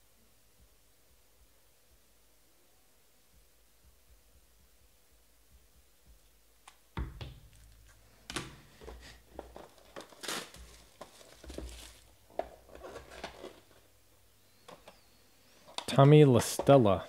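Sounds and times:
plastic shrink wrap crinkling: 7.5s - 14.0s.

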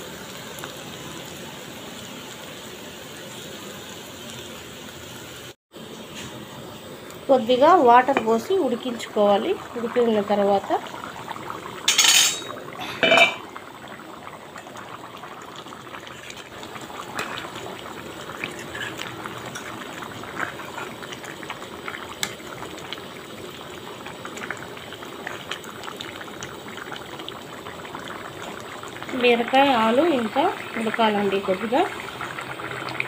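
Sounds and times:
curry bubbling at a simmer: 6.9s - 33.0s
ladle striking pan: 11.9s - 13.5s.

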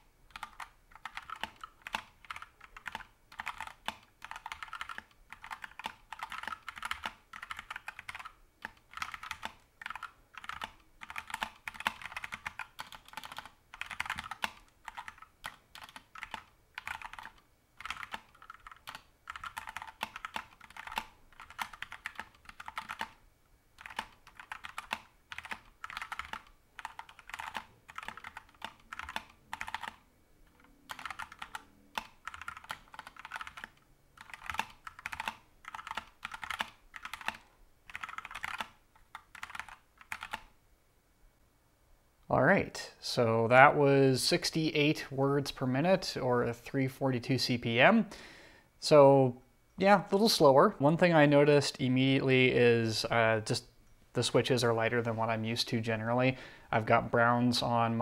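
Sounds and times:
mechanical keyboard typing: 0.3s - 23.2s, 23.8s - 40.5s.

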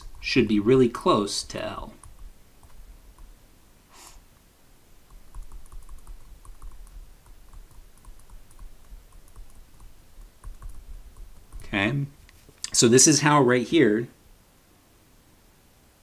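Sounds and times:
stylus tapping on tablet screen: 0.0s - 0.4s, 1.5s - 3.4s, 5.0s - 11.8s.

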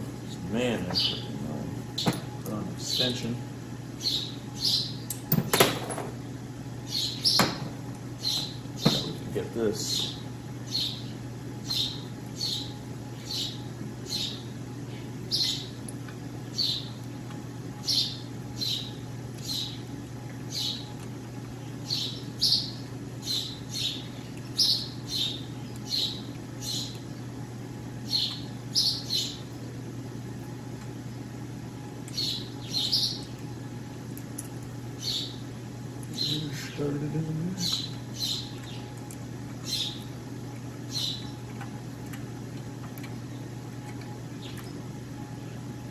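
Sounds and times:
steady low hum: 0.0s - 45.9s
small bird chirping: 4.0s - 5.1s, 6.9s - 7.6s, 8.2s - 9.2s, 9.8s - 15.8s, 17.8s - 19.9s, 20.5s - 20.8s, 21.8s - 27.3s, 28.1s - 29.4s, 32.1s - 33.4s, 35.0s - 35.4s, 37.6s - 38.9s, 39.6s - 40.1s, 40.9s - 41.4s.

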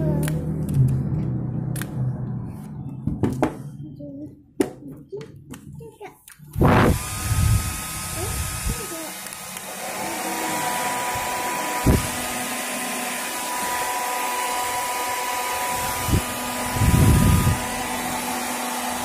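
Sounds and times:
hair dryers blowing with whine: 6.5s - 19.0s
low air rush: 6.6s - 8.9s, 15.4s - 18.3s.

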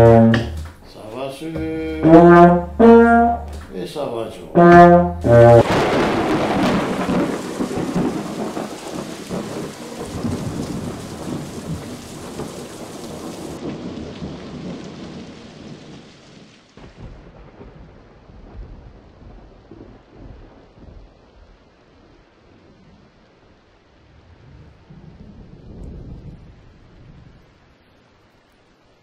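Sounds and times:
rain falling: 0.0s - 29.0s
thunder rolling: 1.5s - 16.2s, 16.8s - 22.8s, 24.0s - 27.6s.

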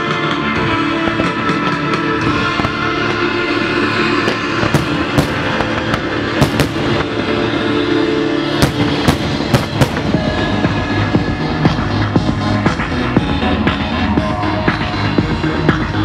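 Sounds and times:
loud classic rock music: 0.0s - 16.0s
firework bangs and cracks: 4.2s - 7.4s, 8.6s - 10.8s.

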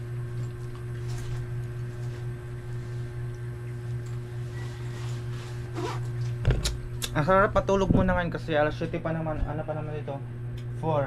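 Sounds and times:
steady low hum: 0.0s - 11.0s
faint handling sounds: 1.0s - 6.4s.

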